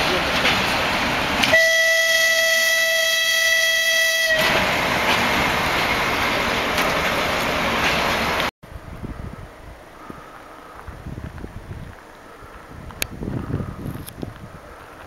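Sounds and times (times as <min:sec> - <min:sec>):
freight train rumbling past: 0:00.0 - 0:15.0
locomotive horn blast: 0:01.4 - 0:04.6.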